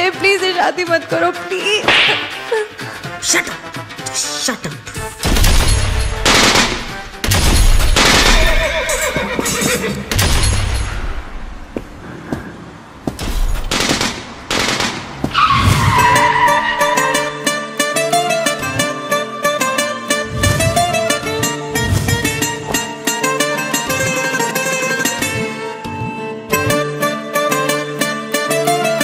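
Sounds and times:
plucked-string tune: 16.4s - 29.0s.

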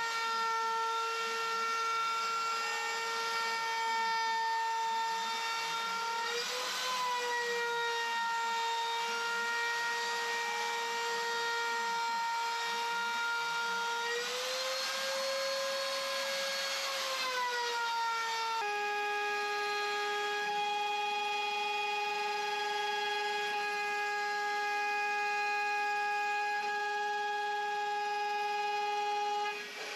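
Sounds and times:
router whining while milling wood: 0.0s - 29.9s.

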